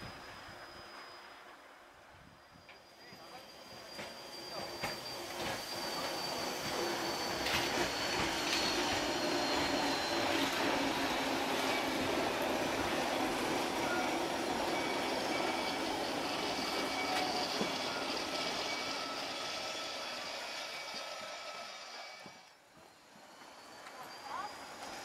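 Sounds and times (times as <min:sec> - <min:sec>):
thin whining tones: 0:00.0 - 0:25.0
train wheels rumbling on track: 0:00.0 - 0:25.0.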